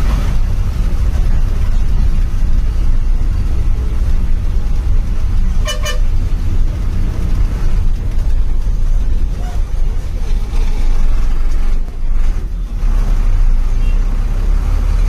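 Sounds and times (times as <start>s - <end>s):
bus engine rumble: 0.0s - 15.0s
road noise: 0.0s - 15.0s
vehicle horn toots: 5.6s - 6.1s.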